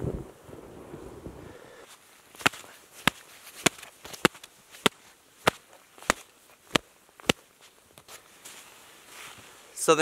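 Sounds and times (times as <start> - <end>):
leather mitts slapping: 2.3 - 8.6.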